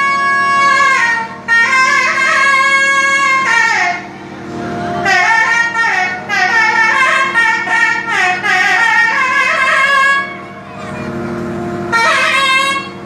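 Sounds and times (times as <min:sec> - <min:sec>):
double-reed pipe melody: 0:00.0 - 0:13.0
steady drone: 0:00.0 - 0:13.0.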